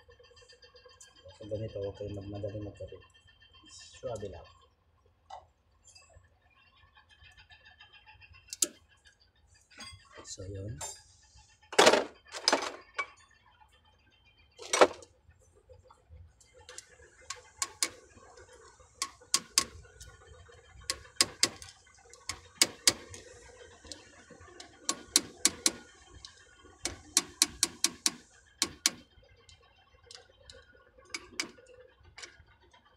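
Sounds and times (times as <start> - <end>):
ratchet wrench clicking: 8.5 - 8.7, 16.7 - 18.0, 19.0 - 19.8, 20.9 - 24.0, 24.9 - 29.0.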